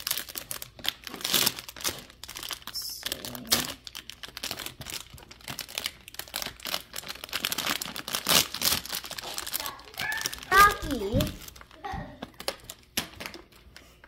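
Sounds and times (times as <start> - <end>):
plastic pouch crinkling: 0.0 - 14.0.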